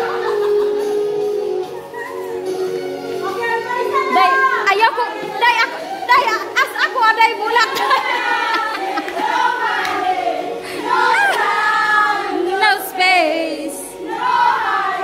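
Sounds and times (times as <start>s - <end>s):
children singing together: 7.5s - 15.0s.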